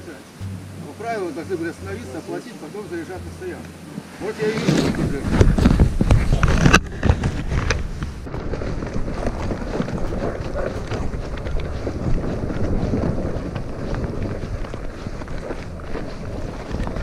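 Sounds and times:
wind buffeting microphone: 3.8s - 17.0s
footsteps on frozen dirt track: 4.5s - 17.0s.

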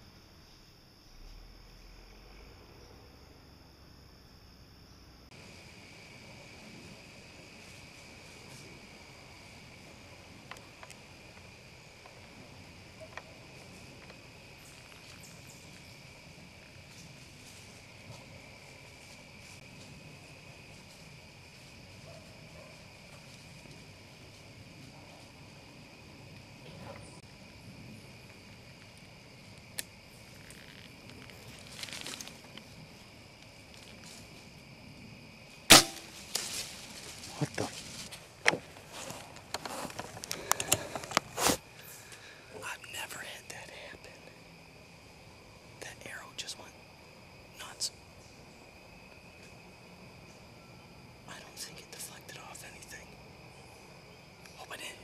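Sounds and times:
crickets trilling: 0.0s - 55.0s
rustling: 30.2s - 34.6s, 35.7s - 42.2s.

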